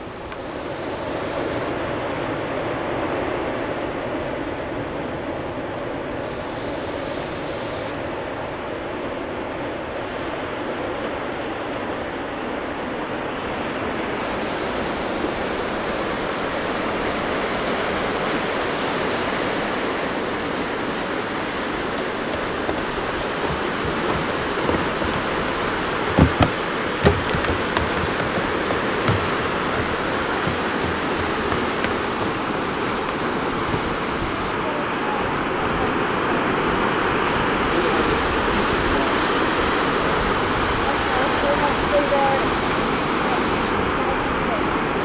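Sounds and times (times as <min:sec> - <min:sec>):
ocean surf breaking on rocks: 0:00.0 - 0:45.0
sharp knocks: 0:22.2 - 0:34.2.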